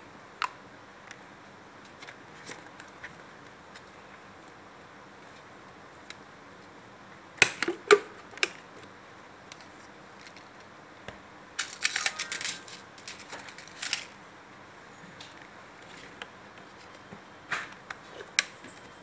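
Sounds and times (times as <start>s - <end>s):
quick plastic clicks and rattles: 11.6s - 14.2s.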